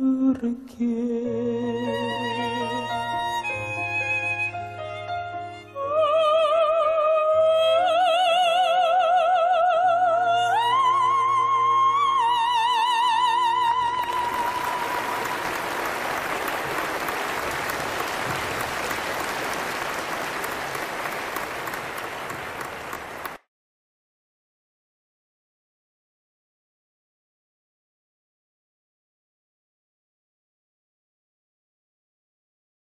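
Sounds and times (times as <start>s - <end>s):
string accompaniment: 0.4s - 23.4s
audience applause: 14.0s - 23.4s.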